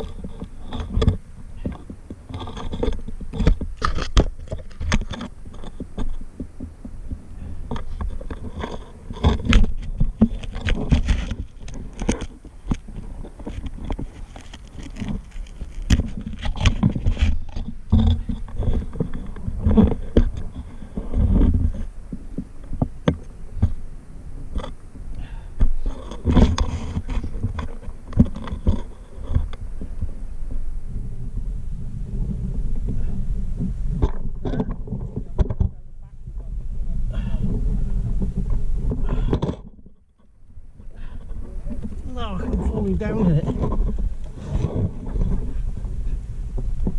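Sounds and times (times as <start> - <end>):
camera bumping against ground: 0.0 - 23.8, 24.5 - 30.6, 37.4 - 46.9
person crawling over soil and rock: 0.0 - 35.4, 36.5 - 46.9.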